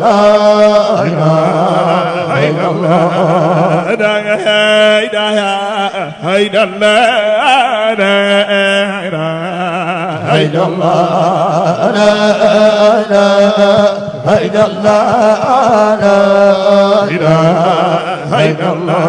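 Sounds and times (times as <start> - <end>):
man chanting into microphone: 0.0 - 19.0.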